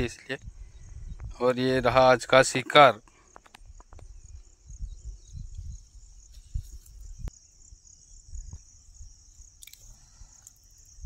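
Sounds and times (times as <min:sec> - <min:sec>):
insect chirring: 0:03.0 - 0:11.0.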